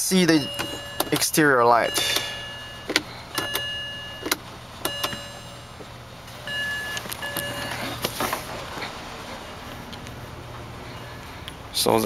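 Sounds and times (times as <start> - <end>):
car warning chime tones: 0.0 - 8.1.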